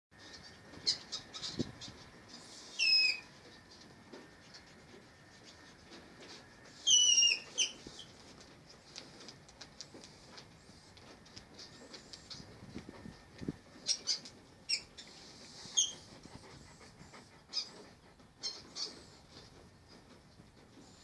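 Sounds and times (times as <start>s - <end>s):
mink squealing: 2.6s - 3.3s, 6.8s - 8.1s, 13.8s - 16.0s.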